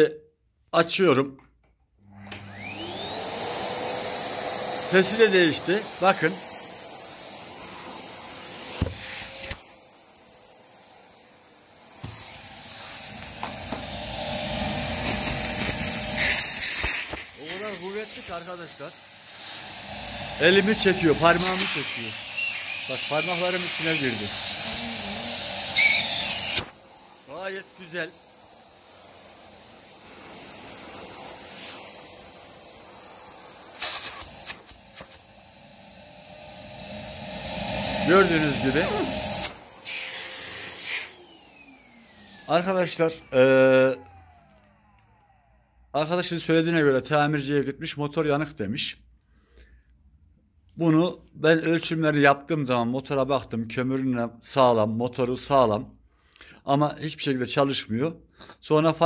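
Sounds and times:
vacuum cleaner running: 2.0s - 46.3s.

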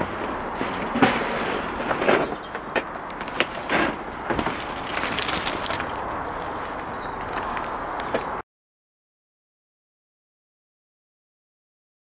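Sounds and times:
twigs rustling and snapping: 1.8s - 8.4s.

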